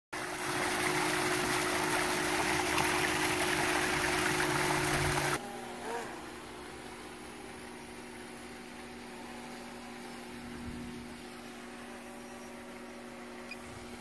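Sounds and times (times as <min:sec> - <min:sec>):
waterfall splashing into pool: 0:00.2 - 0:05.4
steady hum: 0:00.5 - 0:14.0.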